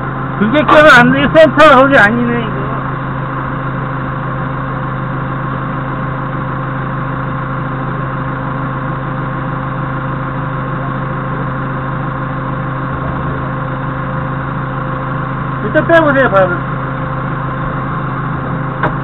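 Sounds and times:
forklift engine idling: 0.0s - 19.0s.

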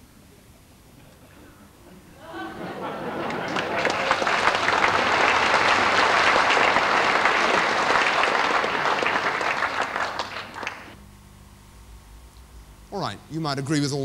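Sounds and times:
audience applauding: 2.3s - 11.0s.

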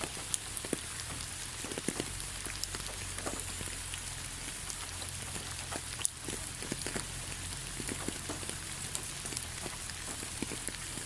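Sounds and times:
raindrops ticking: 0.0s - 11.0s
steady rain falling: 0.0s - 11.0s.

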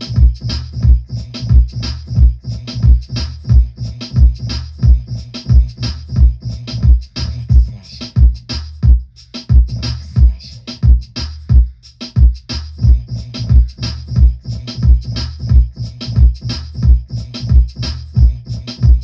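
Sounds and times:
electronic drum beat: 0.0s - 19.0s
heavy kick drum: 0.0s - 19.0s.

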